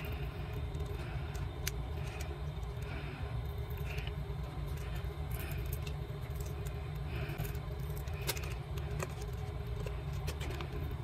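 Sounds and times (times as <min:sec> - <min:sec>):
steady low hum: 0:00.0 - 0:11.0
plastic card scraping and clicking: 0:07.4 - 0:10.8.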